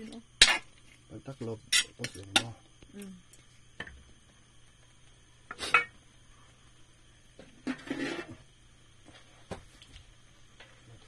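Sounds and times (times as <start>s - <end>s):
metal utensil scraping a wok: 7.6s - 8.4s.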